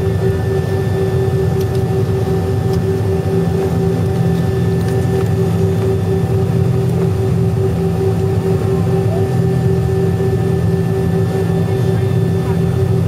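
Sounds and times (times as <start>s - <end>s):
airliner engines droning in cabin: 0.0s - 13.0s.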